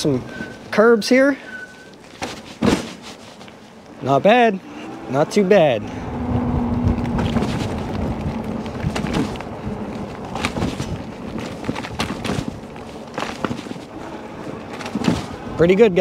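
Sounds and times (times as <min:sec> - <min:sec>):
tyres rumbling: 0:00.0 - 0:16.0
wind: 0:00.0 - 0:16.0
bike frame rattling over bumps: 0:01.6 - 0:03.8, 0:06.7 - 0:16.0.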